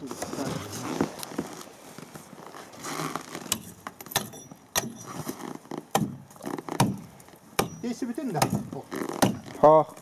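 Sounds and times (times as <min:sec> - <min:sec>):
crunching snow and ice: 0:00.0 - 0:03.9
hatchet knocking on ice: 0:07.6 - 0:09.5.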